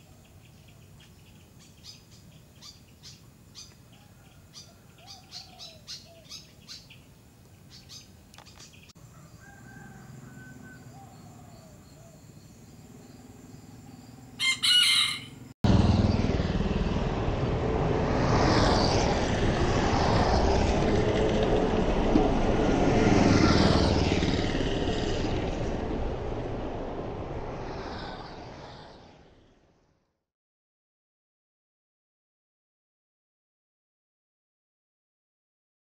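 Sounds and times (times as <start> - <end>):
vehicle road and wind noise: 0.0 - 30.2
rooster crowing: 4.0 - 5.8, 9.0 - 11.8, 14.4 - 15.5.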